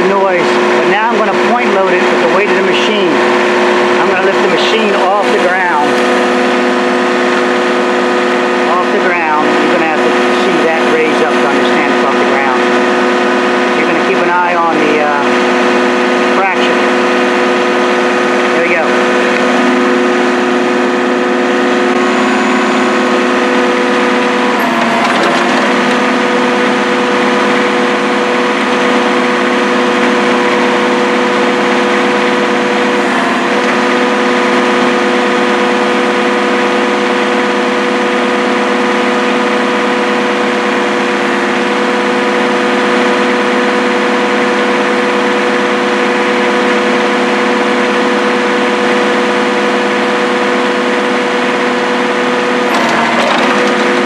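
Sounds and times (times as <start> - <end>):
digger engine droning: 0.0 - 54.0
bucket shifting noise: 23.8 - 29.0, 52.7 - 54.0.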